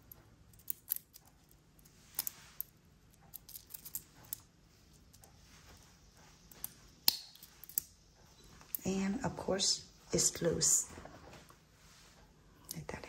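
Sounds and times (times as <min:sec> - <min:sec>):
watch bracelet clinking: 0:00.0 - 0:05.4.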